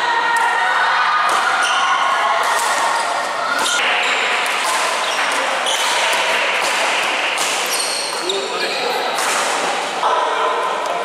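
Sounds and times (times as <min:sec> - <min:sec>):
rackets striking shuttlecock: 0:03.5 - 0:08.3
shoes squeaking on court floor: 0:07.6 - 0:09.1.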